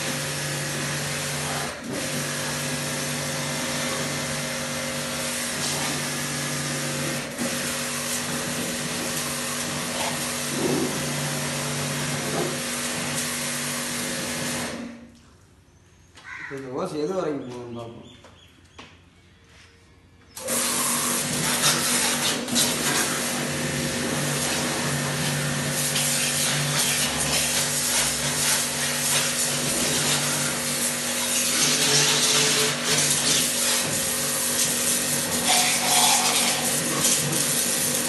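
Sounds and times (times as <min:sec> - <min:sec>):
pressure washer motor hum: 0:00.0 - 0:15.0, 0:20.4 - 0:38.0
high-pressure water jet hiss: 0:05.0 - 0:14.7, 0:20.4 - 0:38.0.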